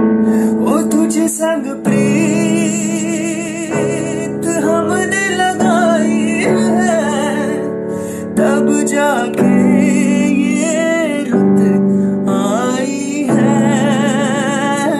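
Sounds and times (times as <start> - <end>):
instrumental keyboard music: 0.0 - 14.9.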